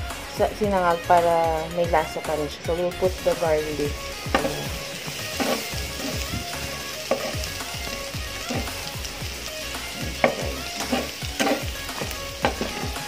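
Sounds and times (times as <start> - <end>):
garlic sizzling in oil: 1.2 - 13.0
spatula scraping pan: 4.2 - 7.5, 8.4 - 9.0, 9.9 - 13.0.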